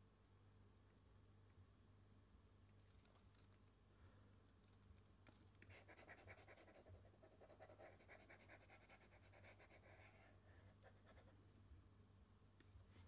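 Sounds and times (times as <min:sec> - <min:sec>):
faint clicks: 0:02.7 - 0:05.7
faint rapid scratching: 0:02.8 - 0:11.5.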